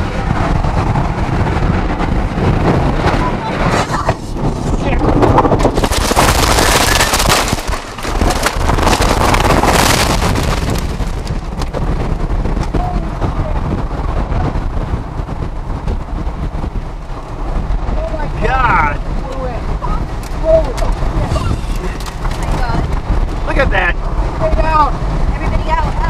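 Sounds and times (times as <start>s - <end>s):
violent wind rushing: 0.0s - 26.0s
debris cracking against car: 5.3s - 12.0s, 20.2s - 23.4s.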